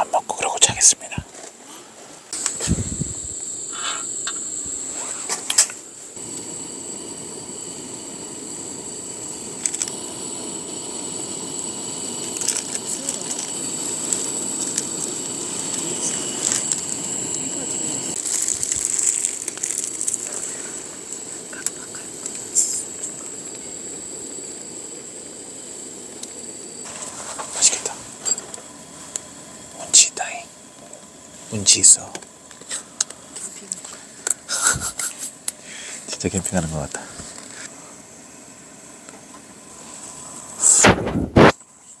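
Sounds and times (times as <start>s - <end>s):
water boiling in a pan: 2.4s - 27.4s.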